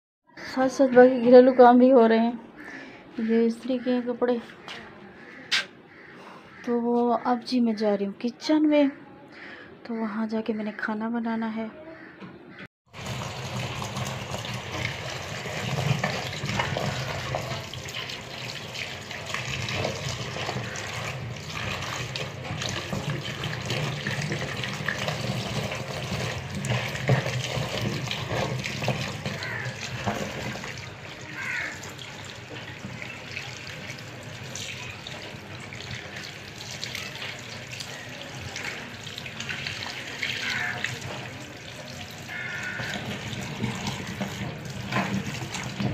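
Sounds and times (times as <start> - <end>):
tap water running: 12.9 - 45.9.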